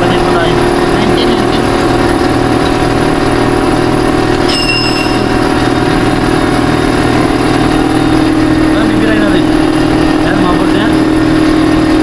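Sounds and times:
air compressor running: 0:00.0 - 0:12.0
high beep: 0:04.5 - 0:05.3.

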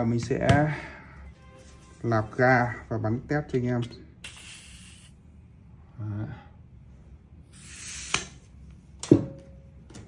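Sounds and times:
gas hissing into magazine: 0:04.2 - 0:05.2, 0:07.5 - 0:08.4.

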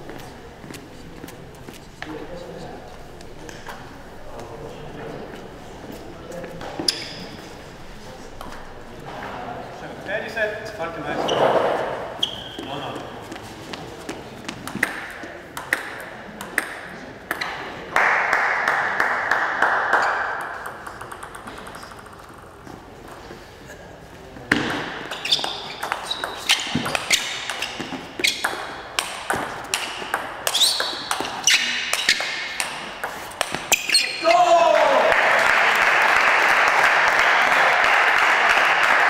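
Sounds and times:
table tennis ball clicking: 0:20.3 - 0:22.6.

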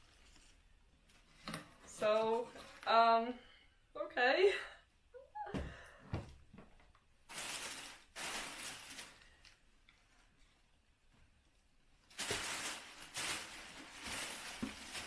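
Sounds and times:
tissue paper rustling and crinkling: 0:07.3 - 0:10.4, 0:12.0 - 0:15.0.

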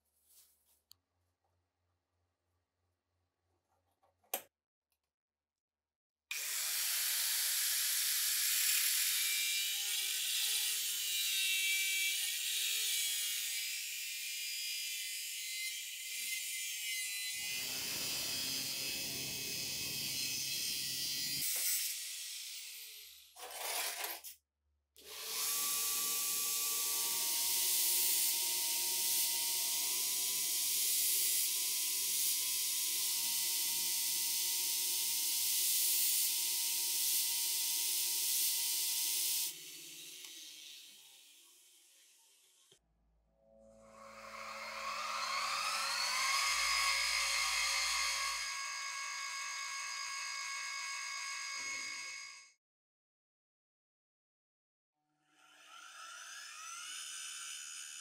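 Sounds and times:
tool scraping metal parts: 0:23.4 - 0:24.4.

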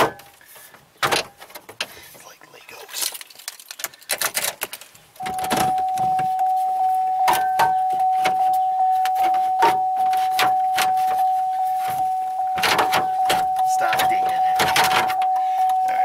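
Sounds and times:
electronic warning tone: 0:05.2 - 0:16.0.

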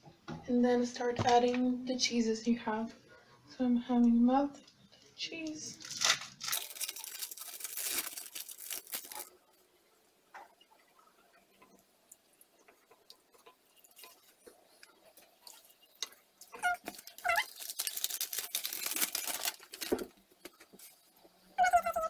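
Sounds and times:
short squeaky cries: 0:16.5 - 0:17.6, 0:21.6 - 0:22.0.

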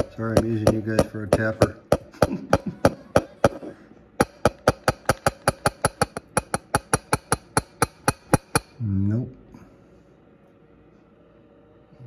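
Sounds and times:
rapid tapping on a dish: 0:00.0 - 0:03.6, 0:04.2 - 0:08.8.

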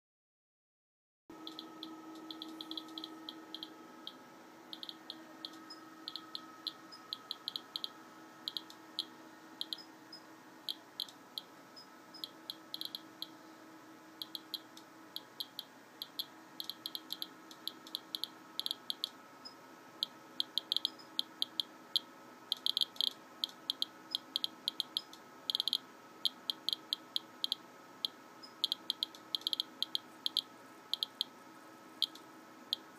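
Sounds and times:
faint steady hum: 0:01.3 - 0:32.9
geiger counter beeps: 0:01.4 - 0:09.9, 0:12.2 - 0:13.3, 0:14.2 - 0:19.1, 0:20.4 - 0:27.6, 0:28.4 - 0:31.3.

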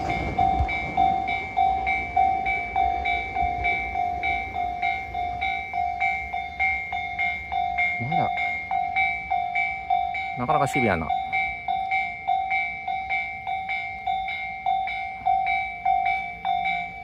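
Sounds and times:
level-crossing alarm ringing: 0:00.0 - 0:17.0.

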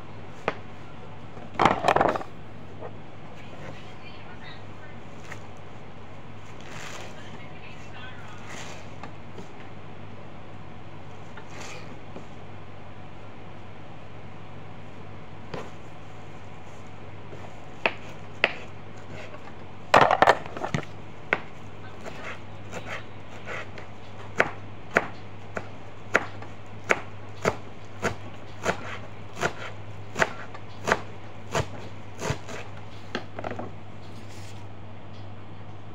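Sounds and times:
knife chopping on cutting board: 0:17.3 - 0:19.3, 0:20.0 - 0:33.6.

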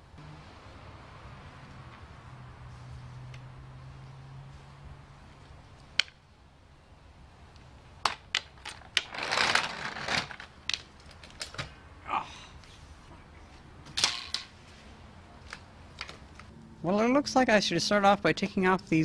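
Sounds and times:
heavy pack scraping on concrete: 0:09.0 - 0:10.4.

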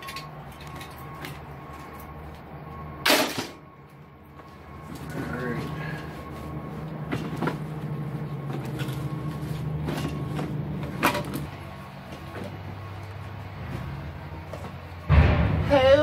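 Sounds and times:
rummaging through a bag: 0:04.4 - 0:13.8.

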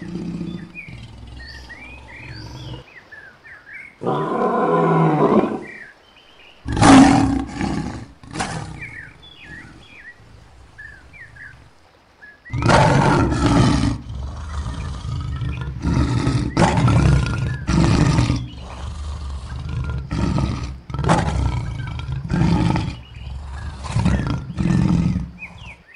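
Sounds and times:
lion roaring: 0:00.0 - 0:02.9, 0:04.0 - 0:05.8, 0:06.7 - 0:11.1, 0:12.5 - 0:25.9
faint bird chirps: 0:00.0 - 0:04.0, 0:25.3 - 0:25.9.

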